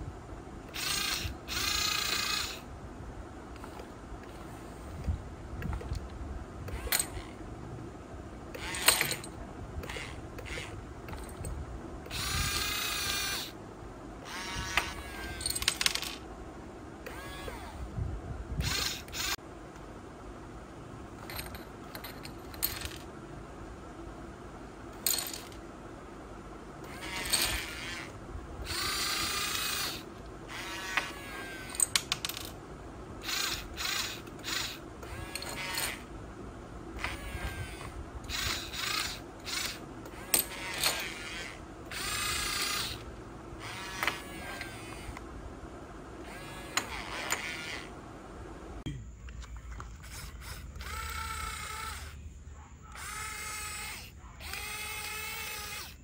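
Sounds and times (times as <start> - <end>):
toy electric motors whirring: 0.7 - 2.7, 3.5 - 7.4, 8.5 - 13.6, 14.2 - 16.2, 17.0 - 17.9, 18.6 - 19.4, 21.2 - 23.1, 26.8 - 32.6, 33.2 - 36.1, 37.0 - 45.2, 46.2 - 47.9, 49.9 - 52.3, 52.9 - 56.0.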